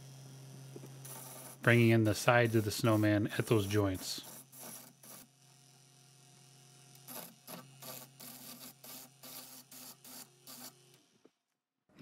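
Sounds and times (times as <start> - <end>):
lathe humming: 0.0 - 5.2
gouge scraping spinning wood: 0.9 - 5.3, 7.0 - 10.8.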